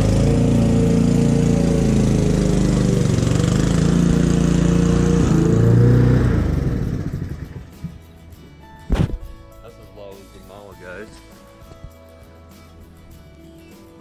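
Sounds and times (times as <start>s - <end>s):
lawn mower engine running: 0.0s - 8.6s.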